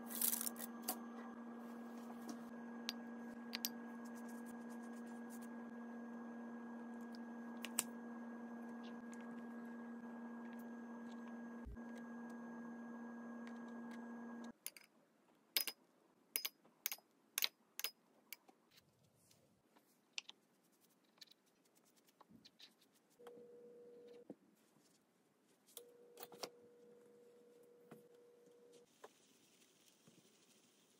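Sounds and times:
faint steady tone: 0:23.2 - 0:24.4, 0:25.7 - 0:30.7.

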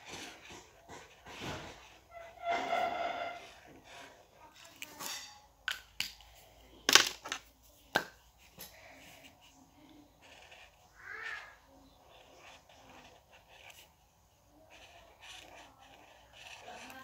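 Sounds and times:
marker squeak: 0:00.2 - 0:04.0, 0:10.2 - 0:13.9, 0:14.7 - 0:16.9.

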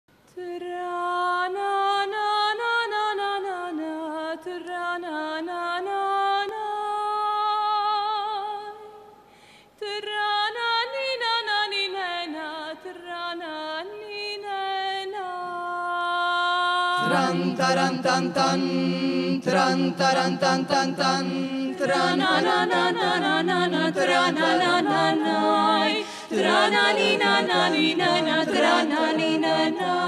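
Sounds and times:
woman singing unaccompanied: 0:00.3 - 0:09.0.

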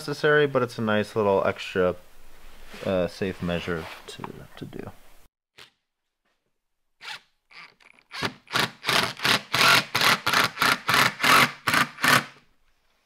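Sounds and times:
impact driver bursts: 0:07.0 - 0:12.4.

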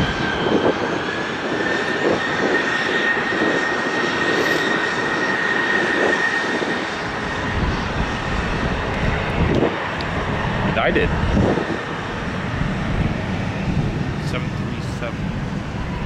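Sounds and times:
jet engines whining: 0:00.0 - 0:16.0.

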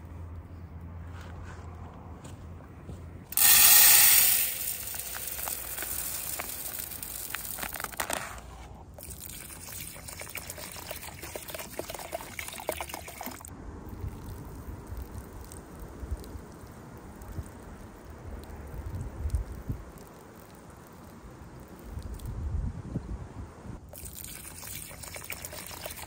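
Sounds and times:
thin stream of water onto ground: 0:03.3 - 0:22.5, 0:23.8 - 0:26.0
splashing rice being washed: 0:03.4 - 0:08.0, 0:09.0 - 0:13.5, 0:23.9 - 0:26.0
water pouring into metal tin: 0:03.4 - 0:08.2, 0:09.0 - 0:13.5, 0:23.9 - 0:26.0.

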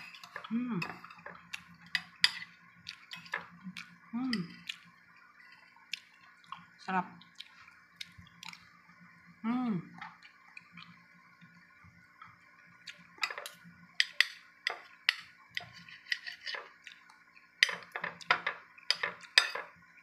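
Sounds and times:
cutlery clinking on ceramic plate: 0:13.2 - 0:16.7, 0:17.6 - 0:19.7.

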